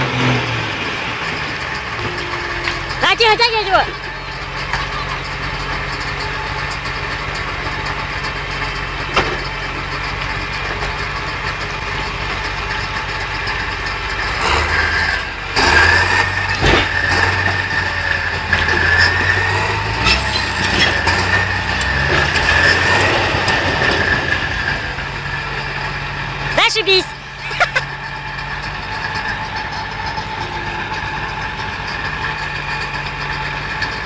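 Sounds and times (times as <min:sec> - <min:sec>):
heavy diesel engine idling: 0:00.0 - 0:34.0.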